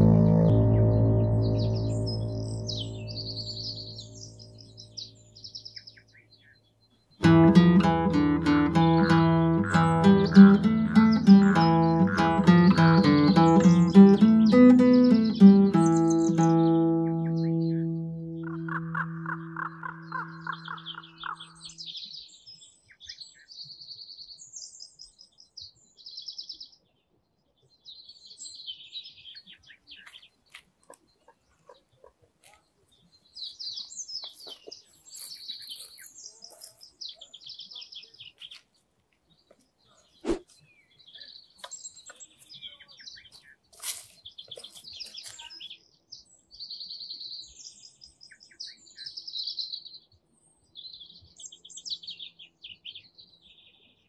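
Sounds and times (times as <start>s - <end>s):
songbirds singing trilled phrases: 0.0s - 26.8s, 32.9s - 54.0s.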